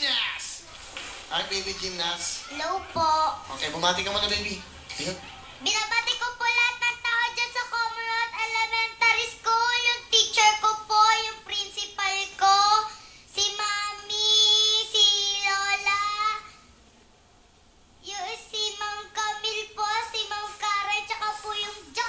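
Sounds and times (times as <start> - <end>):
girl singing into a microphone: 5.6 - 16.6, 18.0 - 22.0.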